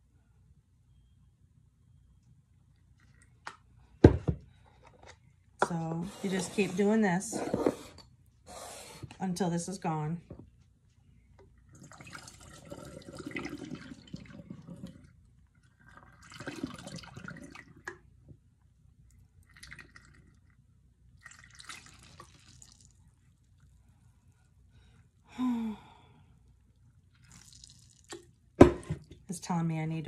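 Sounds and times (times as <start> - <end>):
fizzy liquid pouring into bottle: 11.7 - 15.2, 15.8 - 17.9, 19.4 - 20.5, 21.2 - 23.0, 27.2 - 28.4
person sighing: 25.3 - 26.2.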